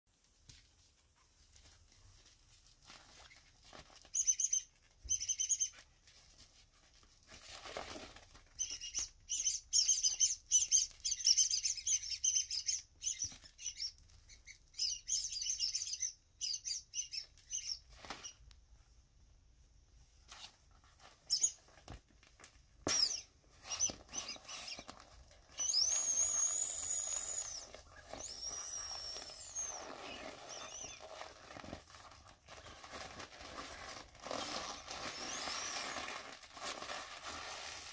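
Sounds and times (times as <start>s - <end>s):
vinyl crinkling: 0.1s - 9.2s, 23.8s - 37.9s
vinyl toys squeaking: 22.9s - 24.9s, 25.5s - 31.1s, 34.8s - 36.0s.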